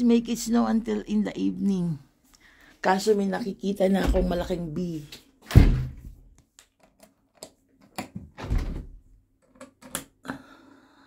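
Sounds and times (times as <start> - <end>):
heavy thump: 5.5 - 6.2.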